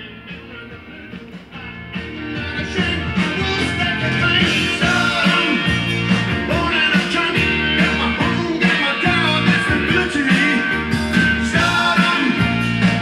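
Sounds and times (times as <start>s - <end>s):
music from vinyl record: 0.0s - 13.0s.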